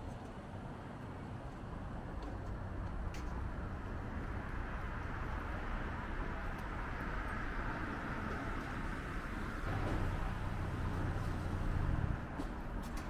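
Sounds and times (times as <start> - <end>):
road traffic rumble: 0.0 - 13.0.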